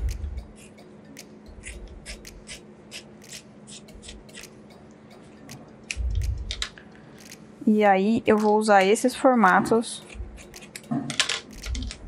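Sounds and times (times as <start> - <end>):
scissors snipping fabric: 0.0 - 4.6, 8.2 - 12.0.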